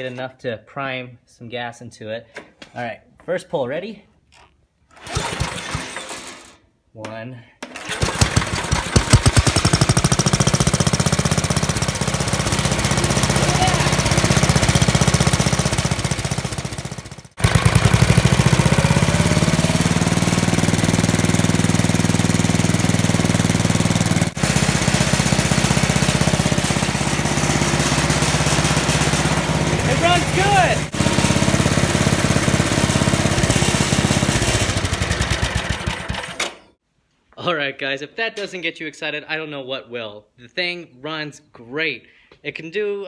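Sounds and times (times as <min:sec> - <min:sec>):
small engine idling: 0:07.8 - 0:36.6.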